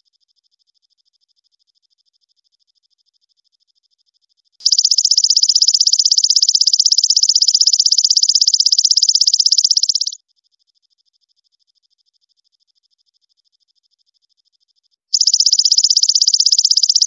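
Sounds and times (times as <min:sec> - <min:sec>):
katydid high-pitched trill: 0:04.6 - 0:10.2, 0:15.1 - 0:17.0.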